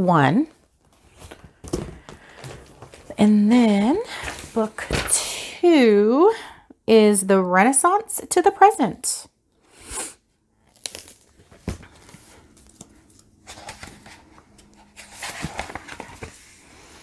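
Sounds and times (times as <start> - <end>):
book pages rustling: 0.5 - 3.2, 10.8 - 17.0.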